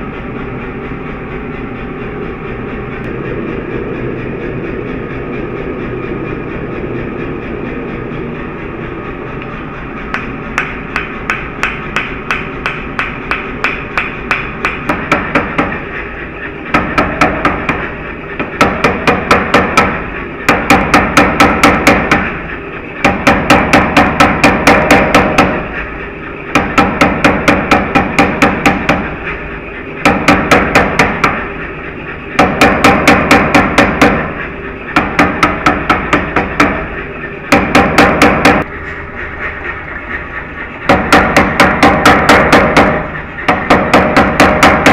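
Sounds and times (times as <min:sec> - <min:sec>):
machine hum: 0:00.0 - 0:44.9
power hammer blows: 0:10.1 - 0:25.8.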